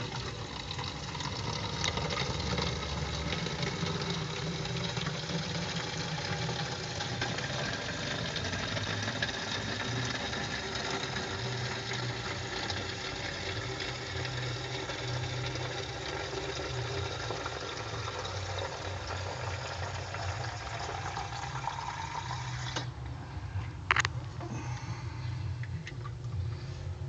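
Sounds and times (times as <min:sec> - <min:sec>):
water filling plastic bottle: 0:00.0 - 0:23.0
low pulsing hum: 0:22.9 - 0:27.0.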